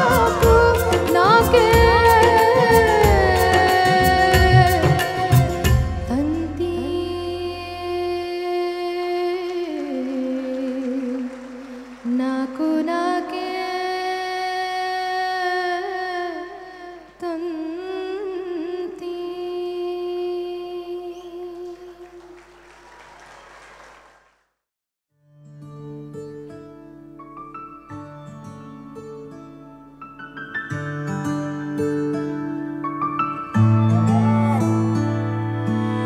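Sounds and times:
woman singing into a microphone: 0:00.0 - 0:22.2, 0:34.0 - 0:36.0.

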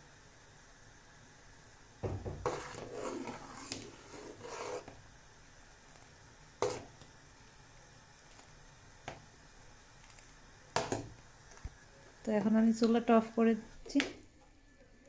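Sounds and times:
spoon scraping pot: 0:02.3 - 0:04.9, 0:06.6 - 0:06.9.

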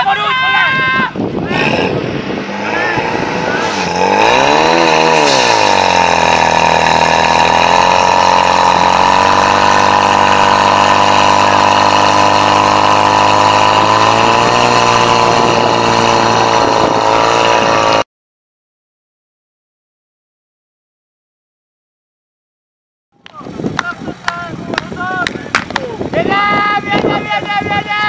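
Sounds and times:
pump engine running at high revs: 0:01.4 - 0:18.1.

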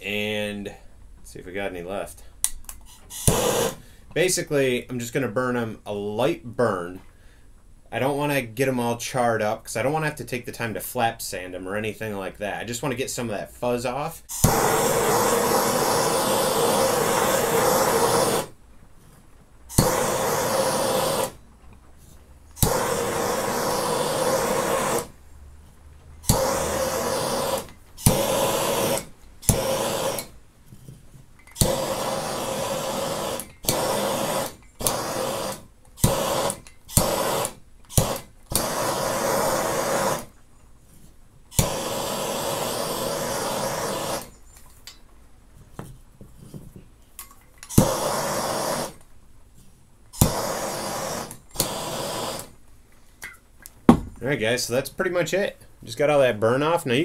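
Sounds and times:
propane torch flame hissing: 0:00.0 - 0:11.9, 0:12.6 - 0:25.4, 0:26.1 - 0:40.4, 0:41.0 - 0:45.0, 0:47.6 - 0:57.0
torch igniter click: 0:02.4 - 0:03.8, 0:14.3 - 0:18.6, 0:19.7 - 0:21.4, 0:22.5 - 0:25.1, 0:26.2 - 0:30.4, 0:31.4 - 0:40.3, 0:41.6 - 0:45.0, 0:50.2 - 0:52.6.

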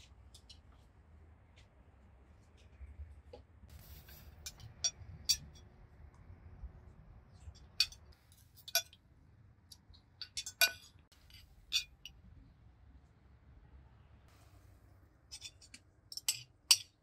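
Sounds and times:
cutlery and dishes clinking: 0:03.8 - 0:05.6, 0:07.6 - 0:09.0, 0:10.2 - 0:12.1, 0:15.3 - 0:17.0.

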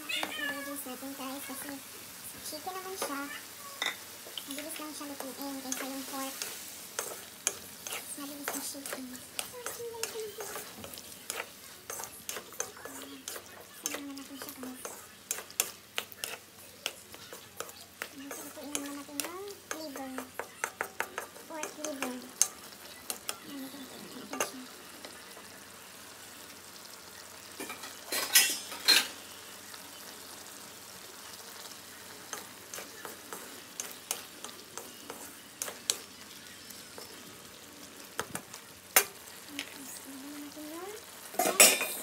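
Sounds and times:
food sizzling in a pan: 0:00.0 - 0:42.0
wooden spatula scraping pan: 0:03.8 - 0:22.2.

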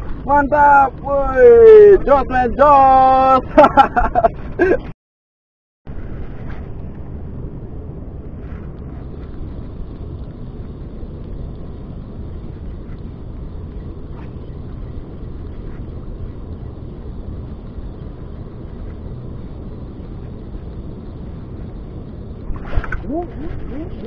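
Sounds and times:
wind buffeting microphone: 0:05.9 - 0:24.0.

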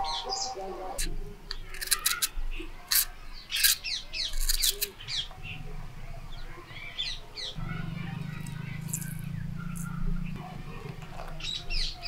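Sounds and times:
small birds chirping: 0:00.0 - 0:12.0
low steady hum: 0:07.6 - 0:11.7.

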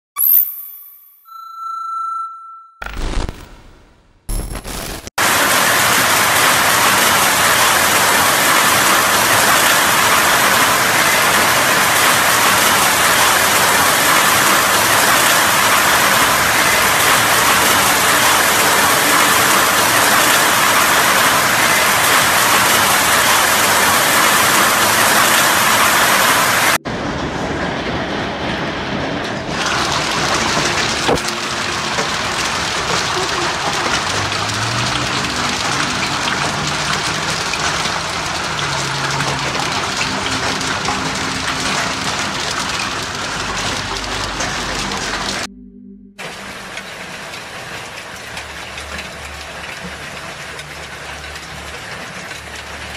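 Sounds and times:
heavy hail clattering: 0:28.9 - 0:45.5.

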